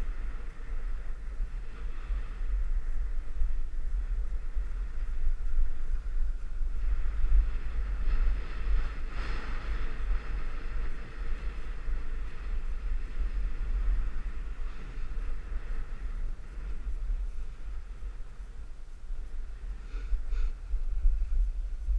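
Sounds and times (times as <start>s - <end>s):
wind buffeting microphone: 0.0s - 21.9s
skis sliding on snow: 6.9s - 21.4s.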